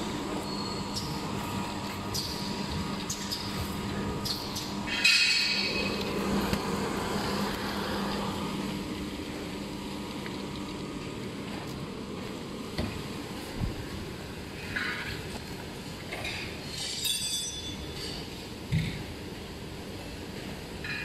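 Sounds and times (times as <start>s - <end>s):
machine humming: 0.0s - 16.0s.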